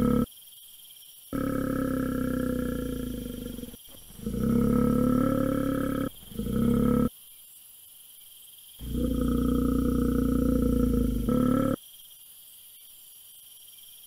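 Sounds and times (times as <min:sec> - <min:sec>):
bear growling: 0:00.0 - 0:00.3, 0:01.3 - 0:07.1, 0:08.8 - 0:11.8.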